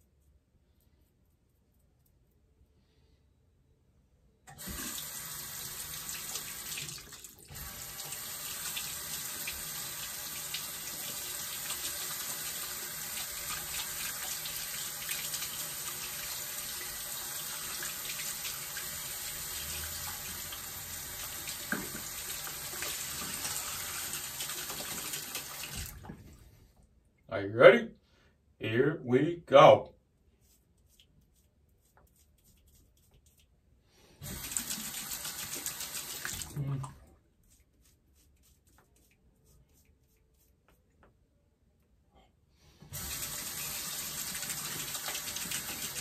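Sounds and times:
faucet running water into sink: 0:04.5 - 0:26.1, 0:34.2 - 0:36.6, 0:42.9 - 0:46.0.

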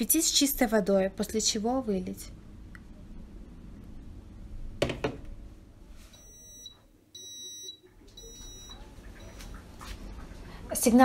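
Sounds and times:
knock: 0:04.8 - 0:05.3.

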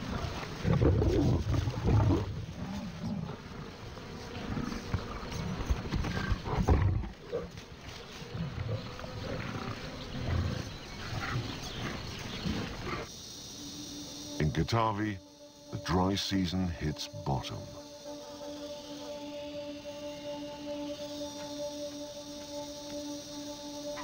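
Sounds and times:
lions growling: 0:00.0 - 0:13.1.

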